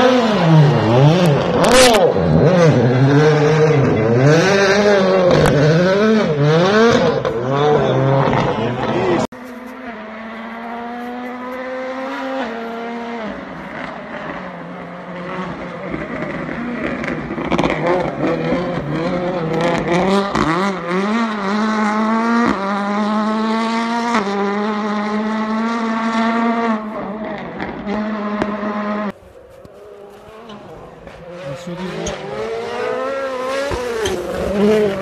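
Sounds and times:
rally car engine accelerating: 0.0 - 35.0.

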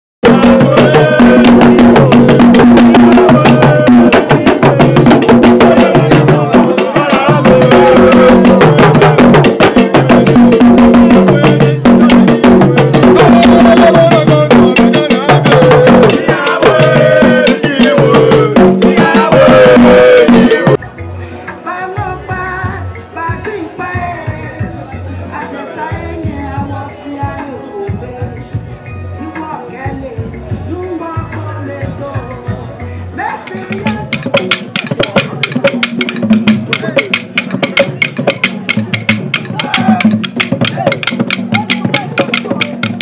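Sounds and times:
men singing together: 0.2 - 20.8, 21.5 - 28.6, 29.4 - 43.0
drums: 0.2 - 43.0.

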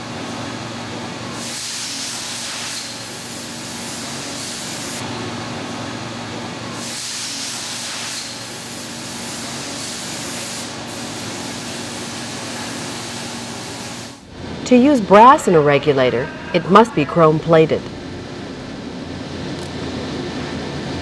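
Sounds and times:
coolant spray hissing: 6.8 - 14.2
machine hum: 10.8 - 21.0.

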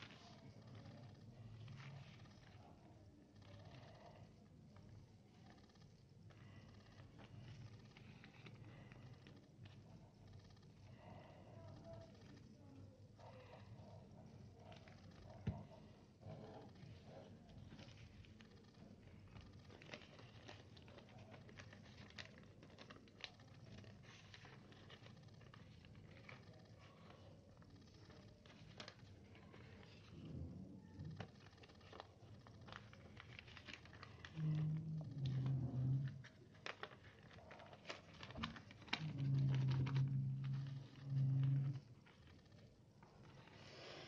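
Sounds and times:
low steady hum: 0.0 - 44.0
paper rustling and crinkling: 0.0 - 44.0.

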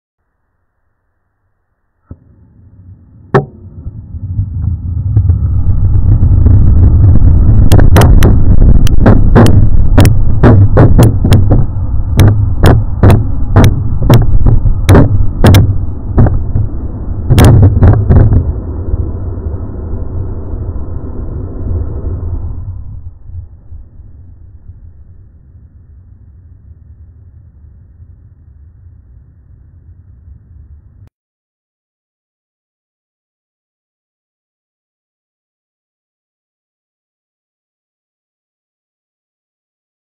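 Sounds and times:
rocket engine roaring: 2.0 - 31.1.

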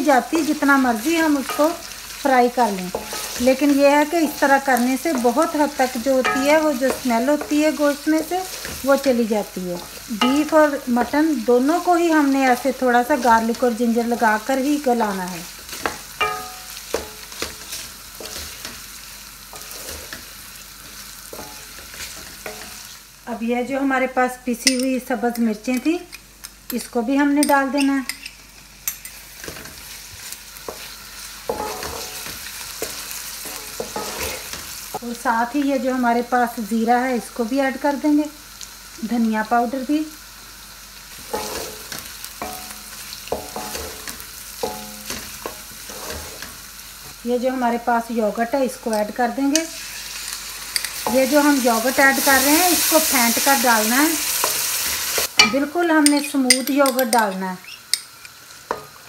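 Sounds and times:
light frying sizzle: 0.0 - 59.0
spatula knocking pan ringing: 2.9 - 7.8, 10.1 - 11.2, 15.8 - 17.6, 31.5 - 34.5, 41.3 - 45.7, 55.4 - 58.8
wooden spatula scraping metal pan: 2.9 - 9.1, 19.5 - 20.3, 30.7 - 34.7, 41.2 - 46.6.

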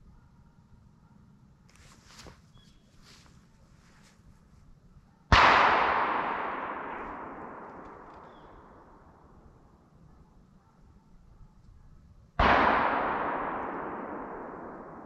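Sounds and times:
shotgun shot echoing: 5.3 - 9.4, 12.4 - 15.0.

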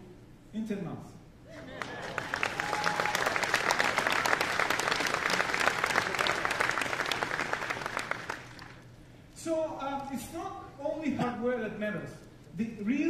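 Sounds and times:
audience applauding: 1.6 - 8.9.

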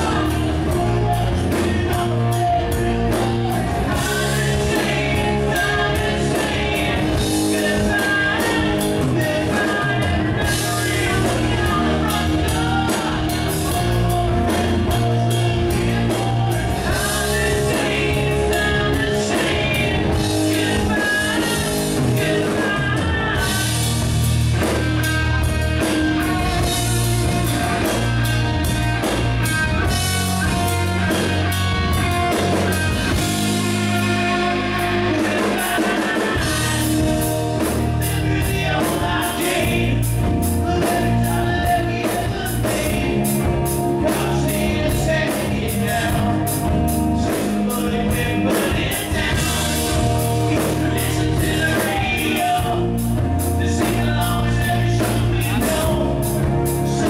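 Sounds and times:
bass guitar: 0.0 - 57.0
drum kit: 0.0 - 57.0
electric guitars: 0.0 - 57.0
person singing: 0.0 - 57.0.

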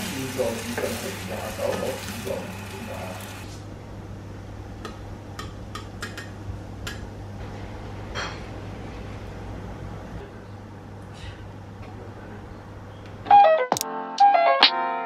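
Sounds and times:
toast sizzling in frying pan: 0.0 - 3.5.

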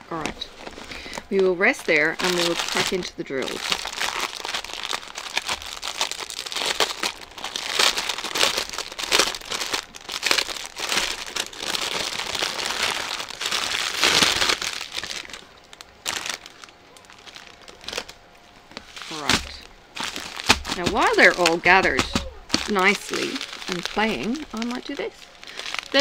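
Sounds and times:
plastic packaging crinkling: 0.0 - 26.0.

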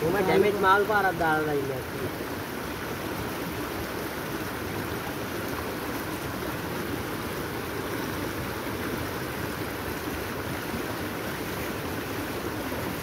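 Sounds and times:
flowing water rushing: 0.0 - 13.0.

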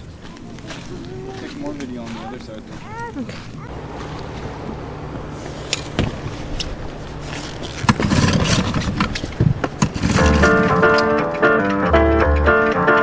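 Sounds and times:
piano background music: 10.2 - 13.0.

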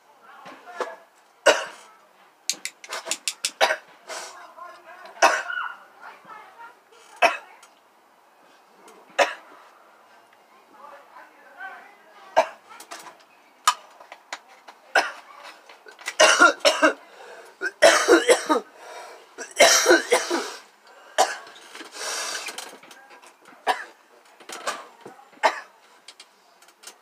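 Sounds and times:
person coughing hard: 1.5 - 1.8, 5.2 - 5.6, 12.4 - 12.6, 16.2 - 17.0, 17.6 - 18.7, 19.4 - 20.6, 21.2 - 21.5, 25.4 - 25.7.

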